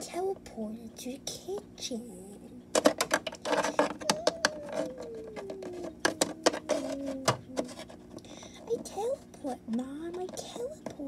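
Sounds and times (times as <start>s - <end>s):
plastic toy tapping on plastic floor: 2.7s - 7.7s.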